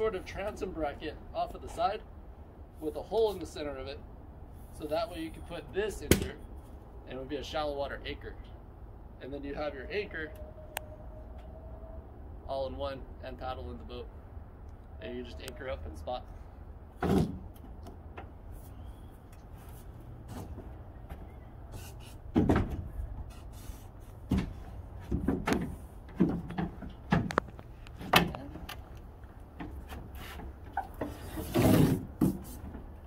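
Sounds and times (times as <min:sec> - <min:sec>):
clunks in an aluminum boat: 0:24.2 - 0:28.8.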